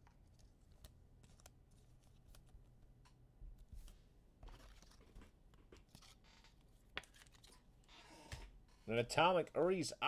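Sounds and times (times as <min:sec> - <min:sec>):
cards and foil packs rustling: 0:04.4 - 0:07.7.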